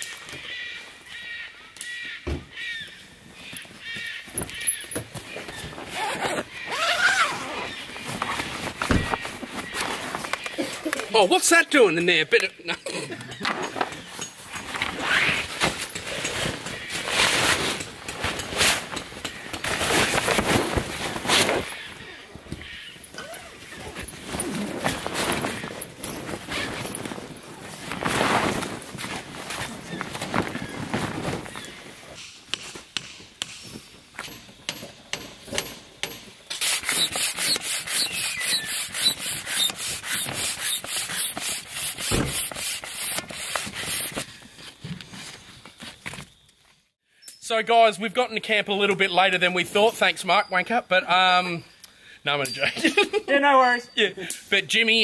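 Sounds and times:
canvas and vinyl rustling: 3.3 - 11.8, 13.7 - 32.2
hand pump whooshing strokes: 36.5 - 44.3.

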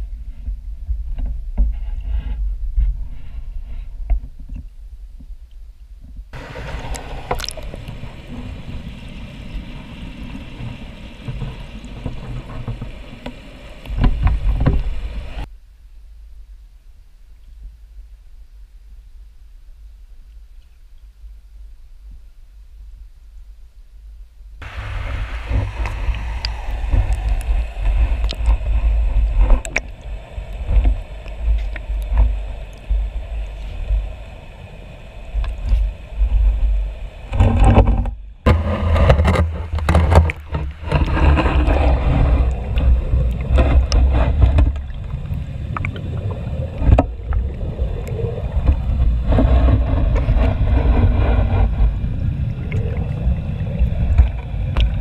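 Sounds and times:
muffled rushing water underwater: 0.0 - 55.0
clicks and knocks underwater: 6.0 - 8.9, 9.5 - 15.5, 24.6 - 34.0, 35.4 - 55.0.

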